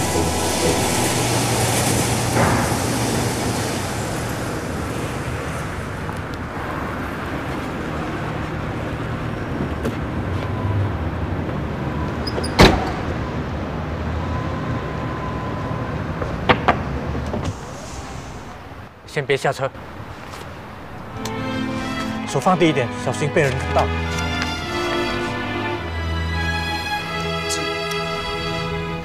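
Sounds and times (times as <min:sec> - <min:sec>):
limousine engine rumble: 0:00.0 - 0:19.1, 0:19.8 - 0:29.0
car door shutting: 0:12.2 - 0:13.2.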